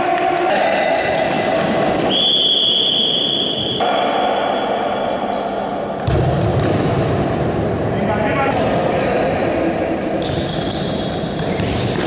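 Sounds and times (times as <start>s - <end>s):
indoor ball game noise: 0.0s - 12.0s
referee whistle long blast: 2.1s - 3.8s.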